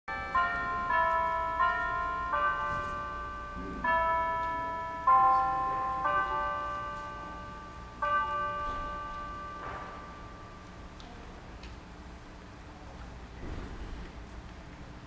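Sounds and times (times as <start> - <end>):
chime bells ringing: 0.1 - 10.8.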